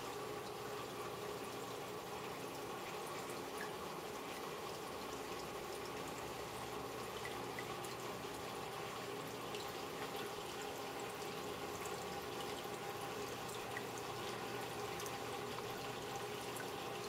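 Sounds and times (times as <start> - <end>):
faint water drips: 0.0 - 17.0
water trickling and bubbling: 0.0 - 17.0.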